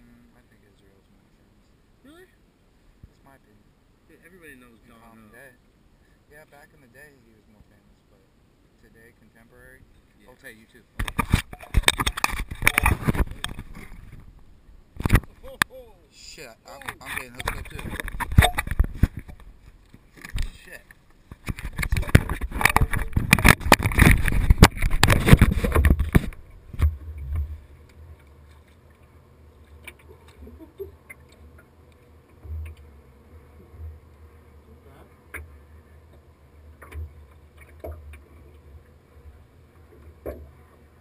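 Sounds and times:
water slapping boat hull: 10.9s - 15.7s, 16.7s - 41.0s
camera handling rustling and knocking: 11.0s - 14.4s, 15.0s - 15.3s, 16.8s - 27.5s.

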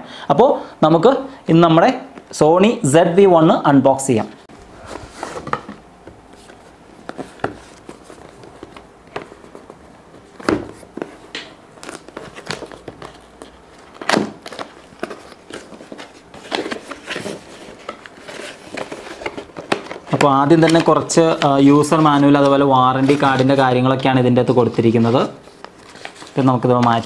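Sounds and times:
cardboard box rustling and clicking: 11.8s - 21.5s.

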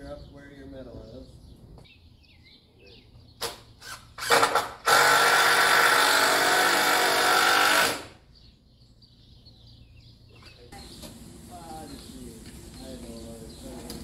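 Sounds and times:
power drill running: 3.8s - 8.2s.

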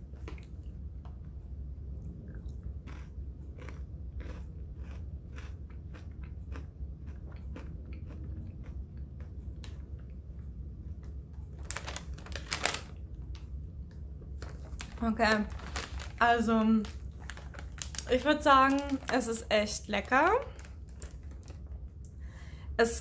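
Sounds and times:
steady low hum: 0.0s - 23.0s
crunchy chewing: 2.2s - 10.2s.

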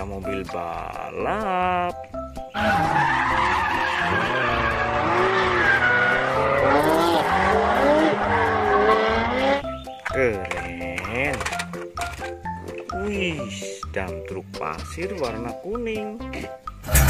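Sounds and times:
tyres squealing: 2.5s - 12.4s
car engine revving: 2.6s - 9.8s.

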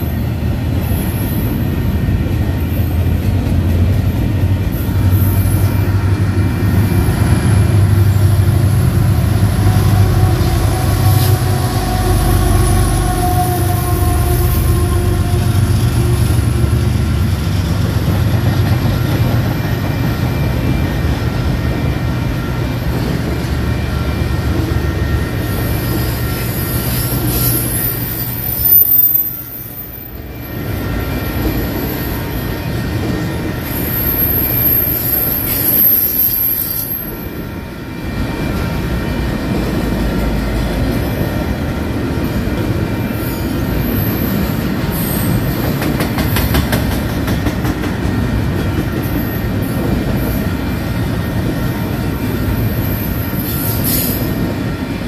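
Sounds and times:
train wheels rumbling on rail: 0.0s - 55.0s
wheel squeal: 33.6s - 37.3s.

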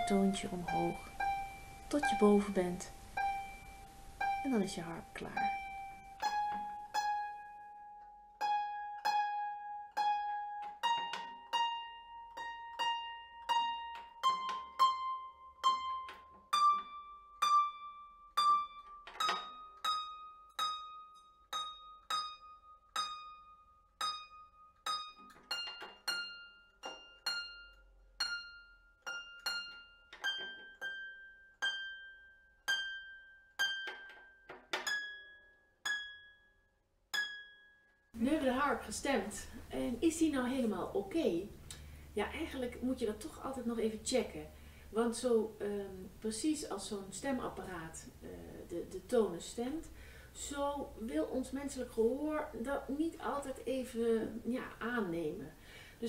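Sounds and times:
harp strings plucked: 0.0s - 23.4s.

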